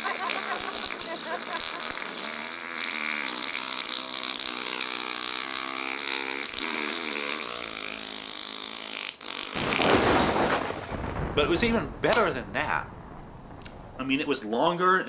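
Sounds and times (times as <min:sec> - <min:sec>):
man blowing a raspberry: 0:00.0 - 0:09.8.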